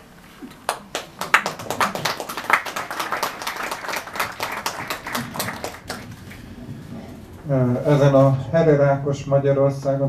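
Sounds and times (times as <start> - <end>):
small audience applauding: 0.4 - 6.6.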